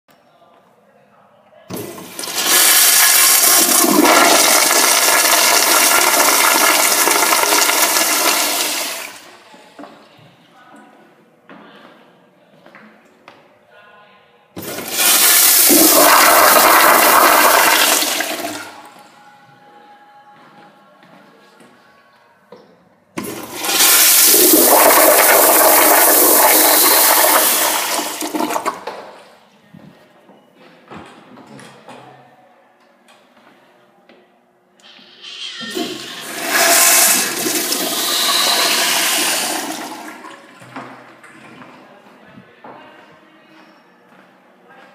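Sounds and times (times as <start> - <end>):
toilet flushing: 1.7 - 9.5, 14.6 - 18.9, 23.2 - 29.2, 34.8 - 40.9.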